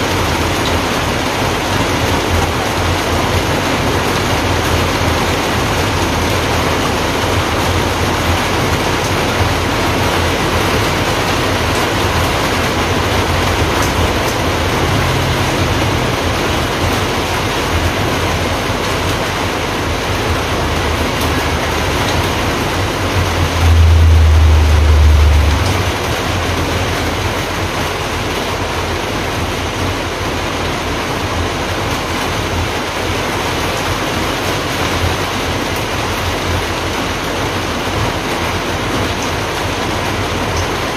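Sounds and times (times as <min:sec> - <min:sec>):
low rumble: 0:10.3 - 0:27.6.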